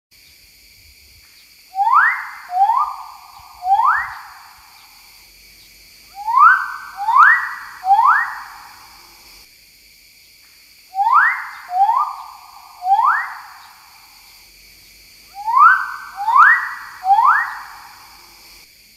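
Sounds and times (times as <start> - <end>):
bird whistles sweeping upward: 1.8 - 4.9, 6.2 - 8.8, 11.0 - 13.8, 15.4 - 18.1.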